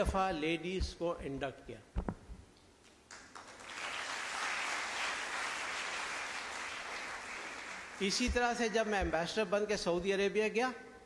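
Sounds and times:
audience applauding: 3.1s - 8.2s.

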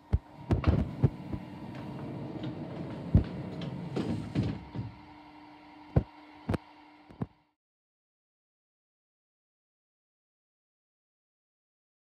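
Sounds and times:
printing press humming: 0.0s - 7.3s.

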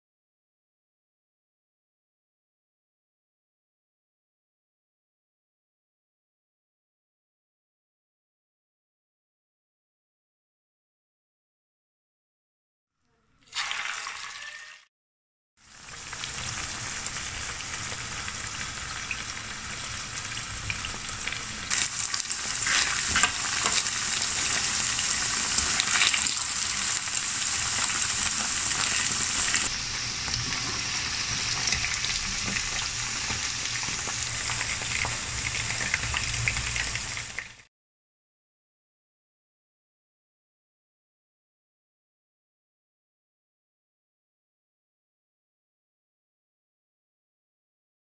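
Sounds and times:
chicken sizzling in hot oil: 13.4s - 14.9s, 15.6s - 37.7s.

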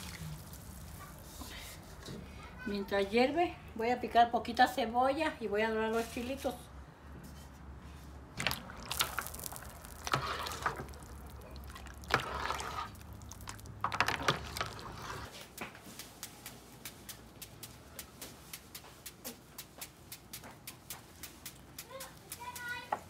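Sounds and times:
broth sloshing and knocks: 8.4s - 15.3s
low rumble of boiling pot: 8.4s - 15.3s
spoon stirring broth in pot: 8.4s - 15.3s.

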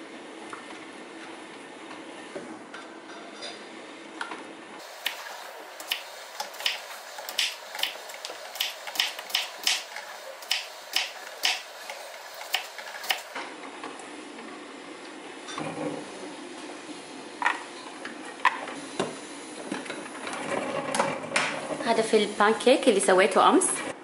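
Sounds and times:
coffee machine humming: 4.8s - 13.6s
knife chopping on wooden board: 8.6s - 11.7s.

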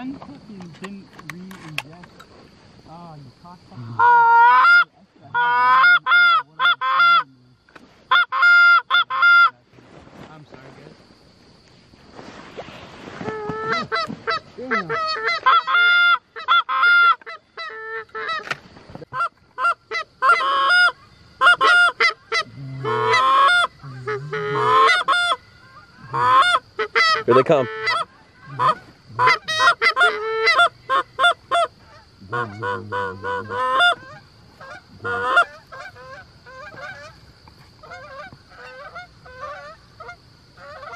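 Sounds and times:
goose honking and clucking: 4.0s - 7.3s, 8.1s - 9.5s, 13.3s - 18.6s, 19.2s - 37.2s, 37.8s - 40.9s.

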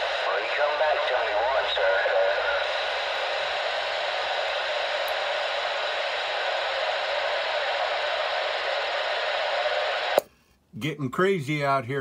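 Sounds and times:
radio static hiss: 0.0s - 10.2s.

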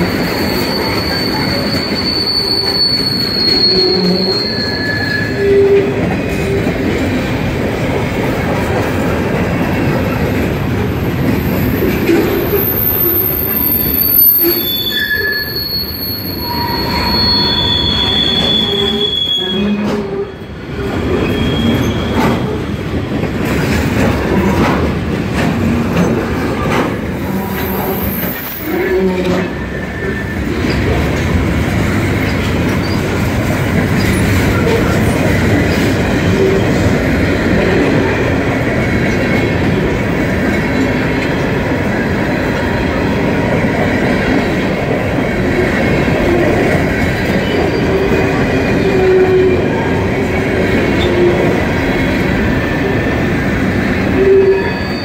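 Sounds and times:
high-pitched wheel squeals: 0.0s - 6.0s, 11.6s - 22.7s, 54.1s - 55.0s
train wheels rumbling on rail: 0.0s - 55.0s.

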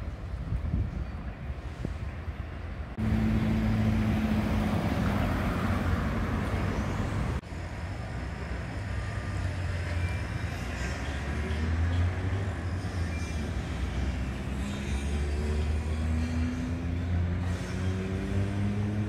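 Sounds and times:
traffic hum: 0.0s - 19.0s
car driving by: 3.0s - 7.4s.

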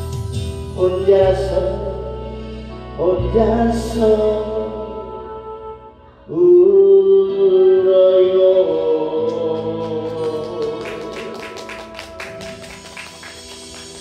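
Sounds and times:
music: 0.0s - 14.0s
man singing a long note: 0.8s - 12.5s
quick claps: 9.3s - 14.0s.

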